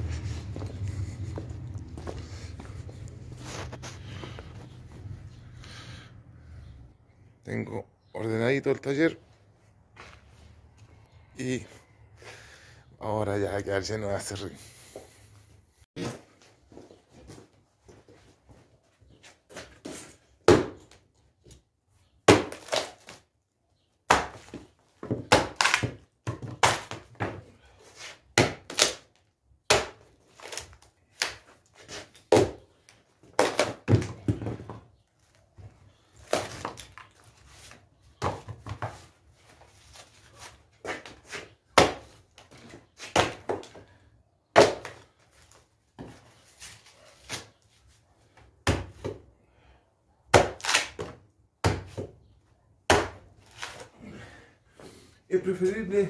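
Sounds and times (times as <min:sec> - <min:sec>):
hatchet chopping wood: 0:20.4 - 0:21.0, 0:22.2 - 0:23.2, 0:24.1 - 0:27.4, 0:28.4 - 0:29.0, 0:29.7 - 0:30.6, 0:32.2 - 0:32.6, 0:41.8 - 0:42.1, 0:43.1 - 0:43.8, 0:44.5 - 0:45.0, 0:48.6 - 0:49.2, 0:50.3 - 0:52.1, 0:52.9 - 0:53.2.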